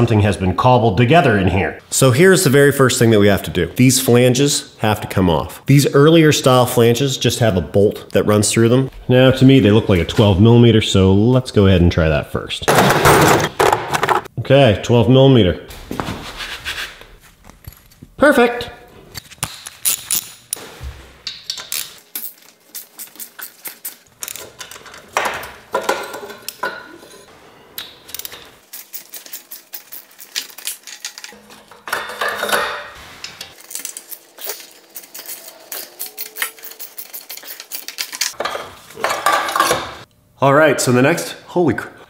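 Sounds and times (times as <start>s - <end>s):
metal clinks and scrapes: 19.2s - 27.4s, 28.0s - 39.4s.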